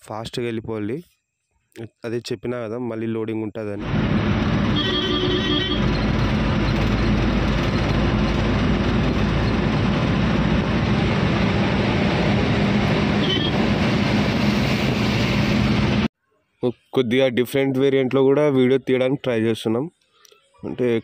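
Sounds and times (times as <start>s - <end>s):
road and wind noise: 3.8s - 16.1s
truck engine drone: 3.8s - 16.1s.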